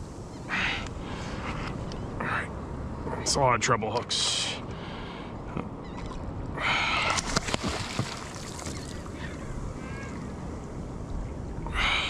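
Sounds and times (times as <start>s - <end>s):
water sloshing against kayak: 6.9s - 9.4s
short splash: 7.0s - 9.0s.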